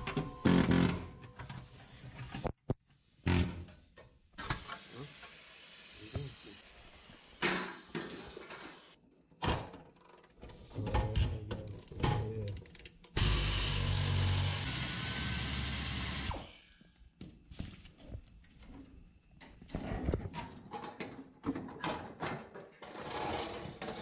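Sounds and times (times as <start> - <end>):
pneumatic air tool running: 4.4 - 8.9, 13.2 - 16.5.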